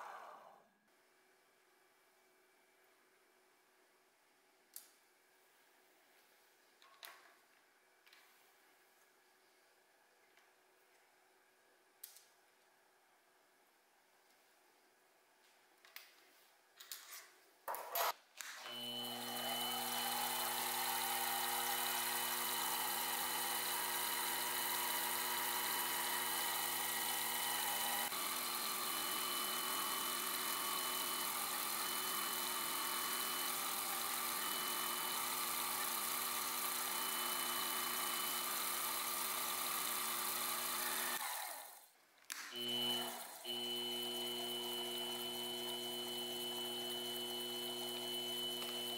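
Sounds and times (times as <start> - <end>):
milling machine spindle motor running: 18.7 - 41.7, 42.6 - 48.9
drill bit drilling into metal: 18.8 - 41.2, 42.8 - 48.9.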